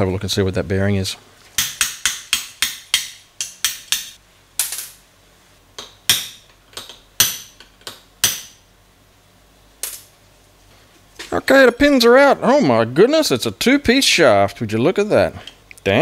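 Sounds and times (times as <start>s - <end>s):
hammer tapping metal punch: 1.6s - 4.8s, 5.8s - 8.6s.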